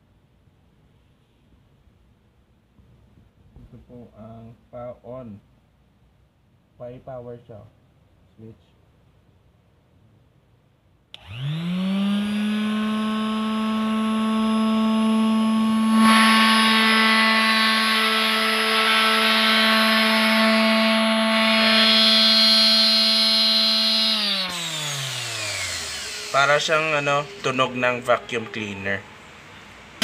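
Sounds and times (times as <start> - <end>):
electric sander humming and whining: 11.2 - 27.7.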